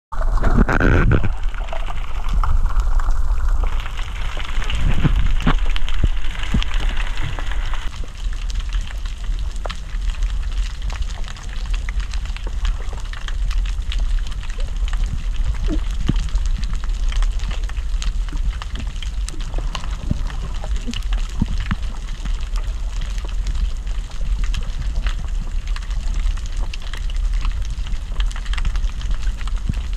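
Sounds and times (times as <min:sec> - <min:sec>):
steady low underwater rumble: 0:00.1 - 0:29.9
fine crackling clicks: 0:00.2 - 0:29.9
hiss of moving water: 0:00.9 - 0:07.9, 0:18.4 - 0:25.3.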